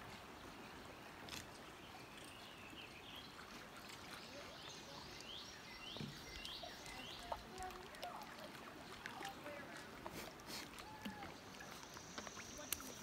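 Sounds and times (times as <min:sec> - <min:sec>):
creek water moving: 0:00.0 - 0:13.0
faint bird chirps: 0:04.2 - 0:07.4.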